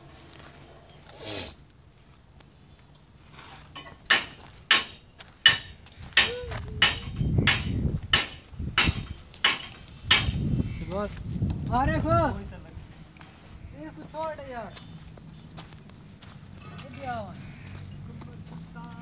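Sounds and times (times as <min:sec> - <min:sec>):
sharp knocks: 0:03.8 - 0:10.4.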